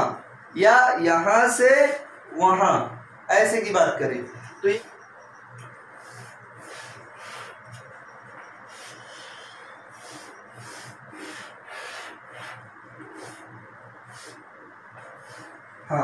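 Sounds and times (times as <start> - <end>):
chalk scraping on blackboard: 6.0 - 15.6.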